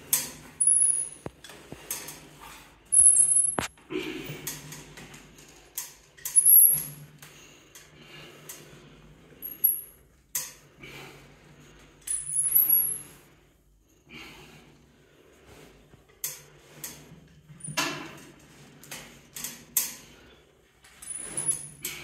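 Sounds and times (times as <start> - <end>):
metallic clinks and clicks: 2.9 - 3.7.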